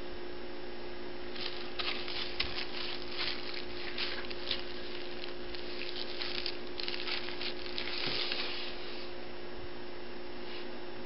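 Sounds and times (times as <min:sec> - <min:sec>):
low electrical hum: 0:00.0 - 0:11.0
paper rustling: 0:01.3 - 0:09.1.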